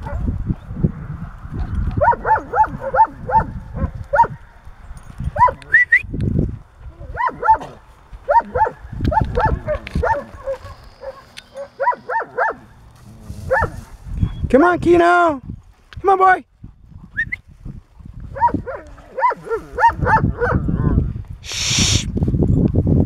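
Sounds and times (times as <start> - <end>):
dog barking: 0.0 - 0.3, 2.0 - 4.4, 5.4 - 5.6, 7.1 - 12.7, 13.5 - 13.8, 18.4 - 20.6.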